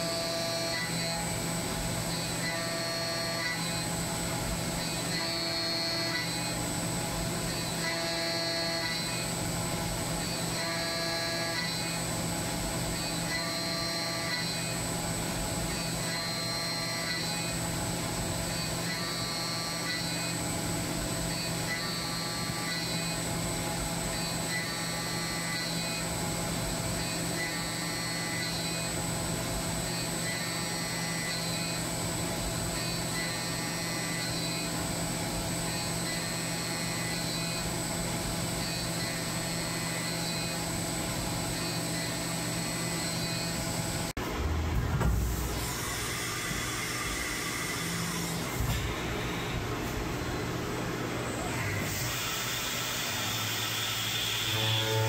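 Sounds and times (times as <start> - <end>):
machine hum: 0.1 - 55.0
mill cutting steel: 51.1 - 55.0.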